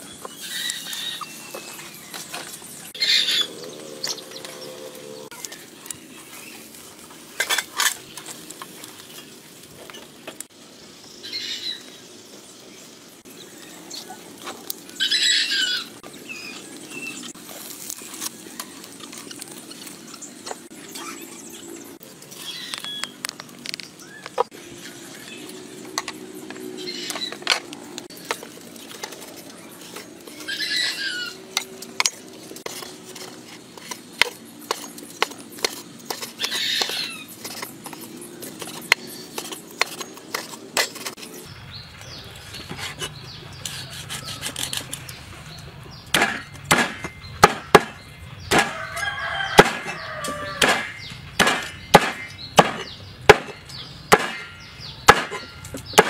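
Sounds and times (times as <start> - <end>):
chicken calling: 30.3 - 31.5
knife chopping on wooden board: 46.1 - 48.7, 49.6 - 50.0, 50.6 - 54.5, 55.1 - 55.4.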